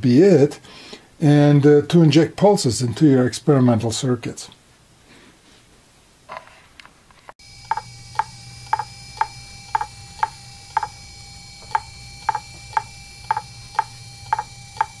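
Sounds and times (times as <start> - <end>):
steady low hum: 7.4 - 15.0
hard drive clicking: 7.6 - 11.0, 11.6 - 15.0.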